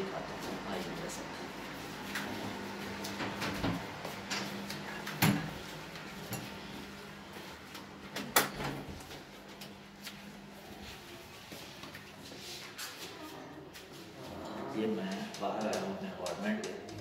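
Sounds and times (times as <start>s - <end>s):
footsteps: 8.8s - 15.2s.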